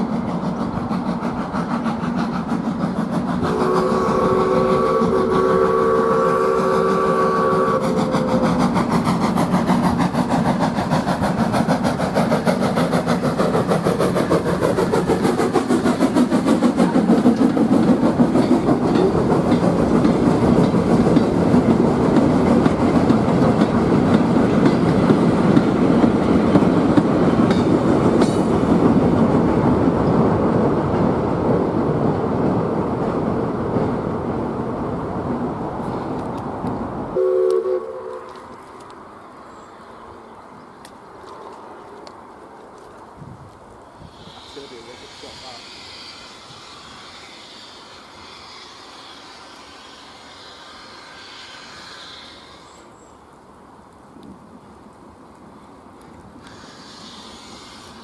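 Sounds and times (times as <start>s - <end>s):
train wheels clattering over rail joints: 0.0s - 5.4s, 7.7s - 31.1s, 56.0s - 58.0s
steam locomotive whistle chord: 3.4s - 8.6s, 37.2s - 38.3s.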